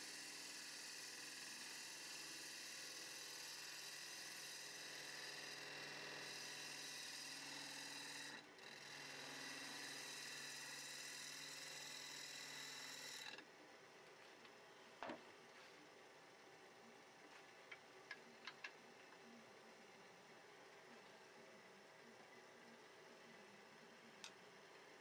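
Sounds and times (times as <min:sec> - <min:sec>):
lathe whine: 0:00.0 - 0:13.4.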